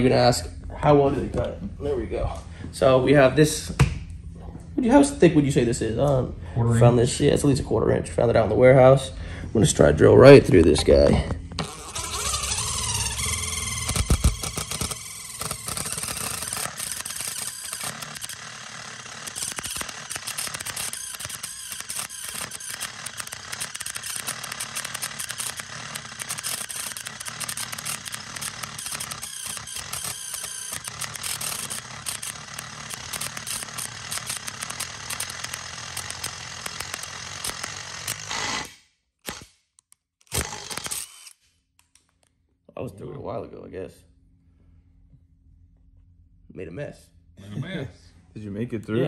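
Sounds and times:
power drill drilling through steel: 0:11.6 - 0:39.5, 0:40.3 - 0:41.4.

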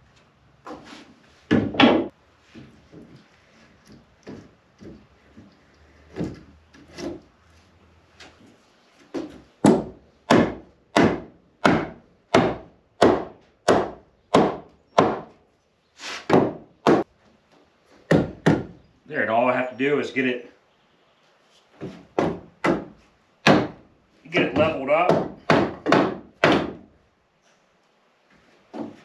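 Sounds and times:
wooden block knocking handrail: 0:24.4 - 0:26.8.

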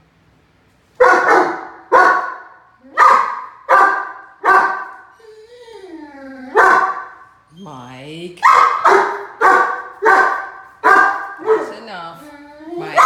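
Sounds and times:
puppy barking: 0:01.0 - 0:05.1, 0:06.5 - 0:07.2, 0:08.4 - 0:13.0.

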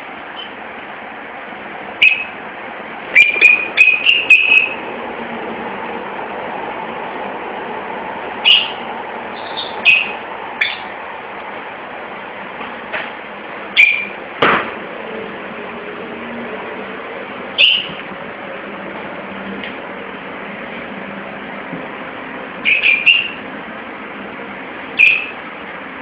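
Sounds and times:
lovebirds chirping: 0:02.0 - 0:02.4, 0:03.1 - 0:04.8, 0:08.4 - 0:11.0, 0:13.8 - 0:14.2, 0:17.6 - 0:18.0.

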